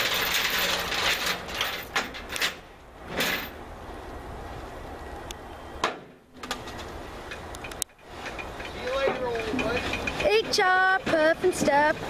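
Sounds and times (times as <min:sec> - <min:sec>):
metal scraping slide: 0:00.0 - 0:03.6
metallic clanks and knocks: 0:07.3 - 0:12.0.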